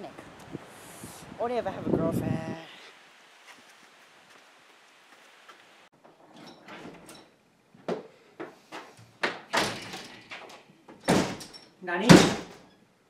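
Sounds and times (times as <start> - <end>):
knocks and clunks: 6.0 - 12.7
door opening: 6.0 - 12.8.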